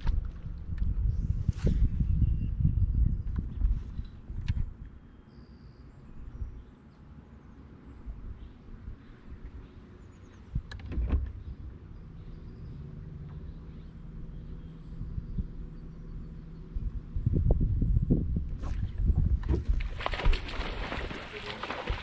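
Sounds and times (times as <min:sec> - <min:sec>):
wind: 0:00.0 - 0:22.0
water noise: 0:18.5 - 0:22.0.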